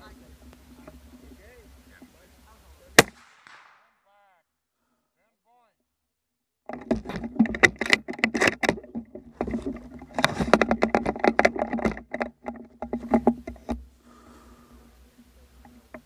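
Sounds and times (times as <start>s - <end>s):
faint steady hum: 0.0s - 16.0s
hands handling rifle: 6.7s - 13.9s.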